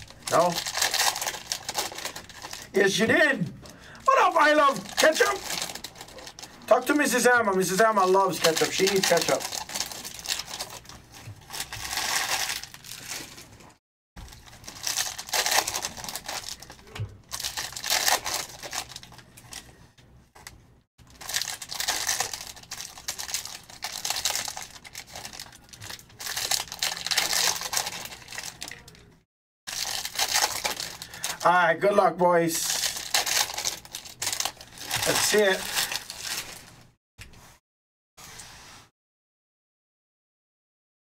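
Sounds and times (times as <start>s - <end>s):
wrappers crinkling and tearing: 0.0s - 19.7s, 20.4s - 29.1s, 29.7s - 31.6s, 32.6s - 36.9s.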